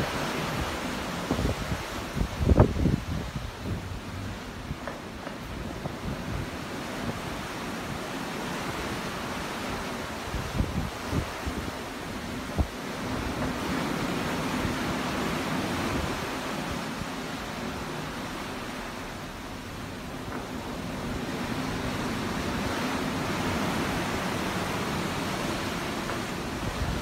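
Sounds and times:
ocean waves washing in: 0:00.0 - 0:27.0.

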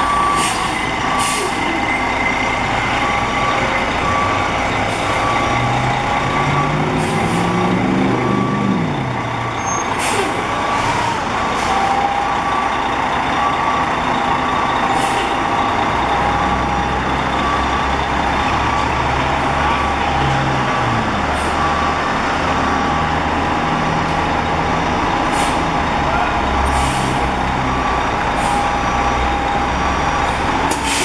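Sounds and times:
backup alarm beeping: 0:00.0 - 0:01.5, 0:02.9 - 0:09.8
diesel engine running: 0:00.0 - 0:31.0
air brake hisses: 0:00.4 - 0:01.6, 0:30.7 - 0:31.0.

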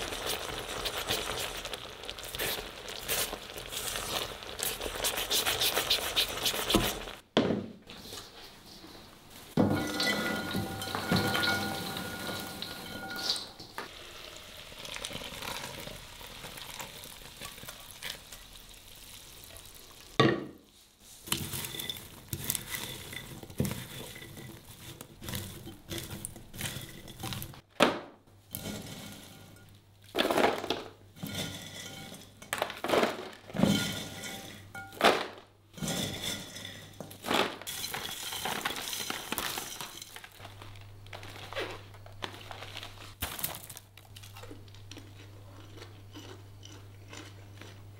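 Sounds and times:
popcorn tossed in bowl: 0:00.0 - 0:07.2, 0:09.6 - 0:14.0, 0:21.2 - 0:27.6, 0:28.5 - 0:44.4
pan clinking against glass bowl: 0:09.6 - 0:13.6.

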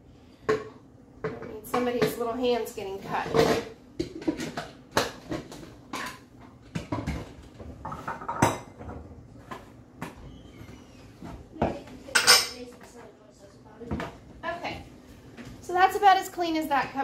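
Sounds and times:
plastic containers clattering: 0:03.1 - 0:10.2.

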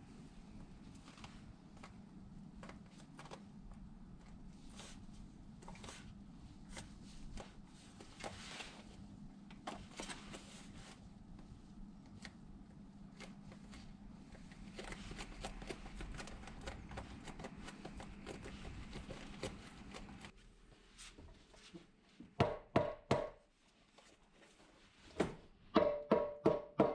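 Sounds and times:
faint low hum: 0:00.0 - 0:22.4
fingers pressing crackling material: 0:12.0 - 0:20.3.

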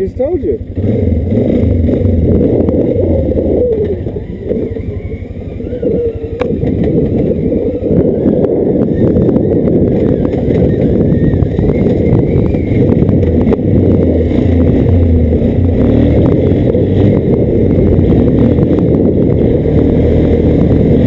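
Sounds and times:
atv engine running: 0:00.0 - 0:21.0.

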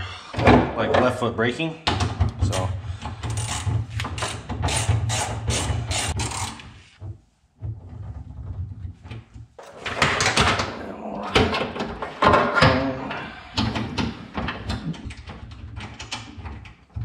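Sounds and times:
hand ratchet clicking: 0:03.3 - 0:06.6.

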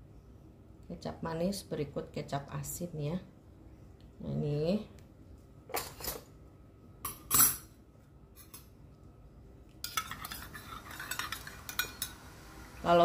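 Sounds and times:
metal bowls clattering: 0:09.8 - 0:12.2
spoon clinking and scraping bowl: 0:09.8 - 0:12.2.

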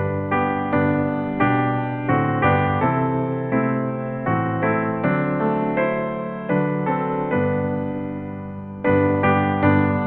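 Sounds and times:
slow hymn on piano: 0:00.0 - 0:10.0.

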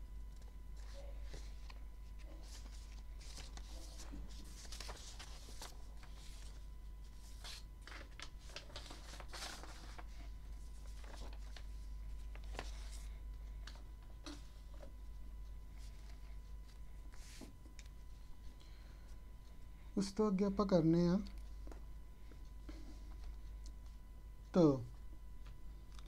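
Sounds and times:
paper pages rustling: 0:00.3 - 0:18.3.

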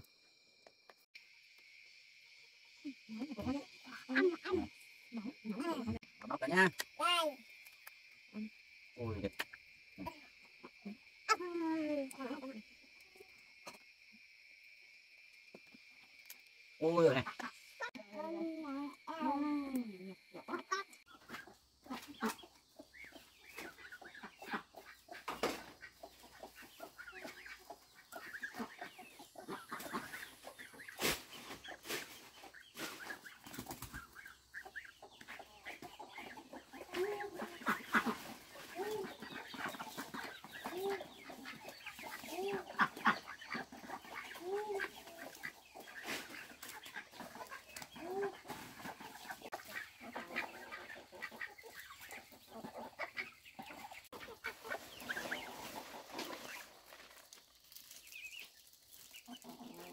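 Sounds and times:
chickens clucking: 0:16.8 - 0:59.9.

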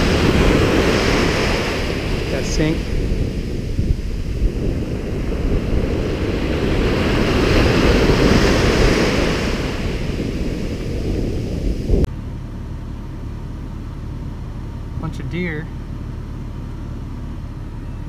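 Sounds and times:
ocean surf breaking: 0:00.0 - 0:12.1
wind buffeting microphone: 0:00.0 - 0:12.1
low rumble: 0:00.0 - 0:18.0.

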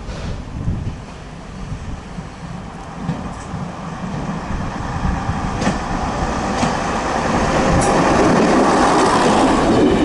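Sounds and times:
railbus running past: 0:00.0 - 0:10.0
wheels clicking over rail joints: 0:05.5 - 0:10.0.

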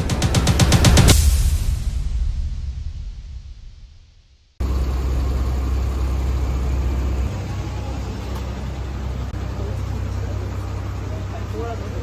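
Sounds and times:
music: 0:00.0 - 0:04.5
car rumbling: 0:04.6 - 0:12.0
road noise hiss: 0:04.6 - 0:12.0.

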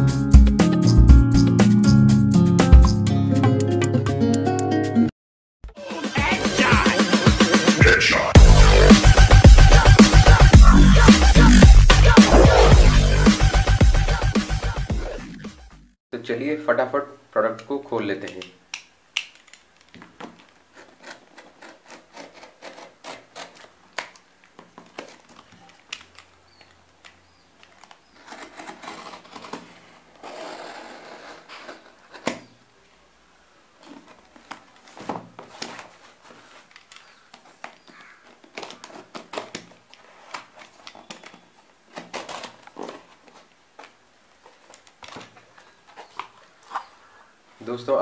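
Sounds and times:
cardboard flaps crinkling: 0:19.3 - 0:33.0, 0:33.7 - 0:47.7
utility knife cutting cardboard box: 0:20.7 - 0:24.2, 0:27.6 - 0:32.5, 0:37.9 - 0:43.4.

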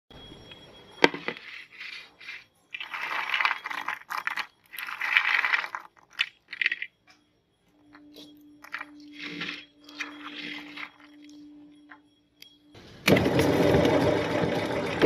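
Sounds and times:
cookies clattering on a plate: 0:01.0 - 0:07.3.

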